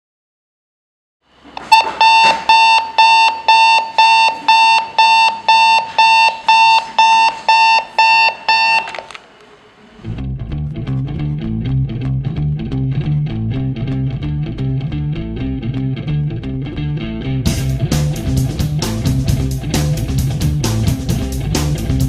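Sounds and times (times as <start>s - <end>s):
alarm clock beeping: 1.6s - 9.1s.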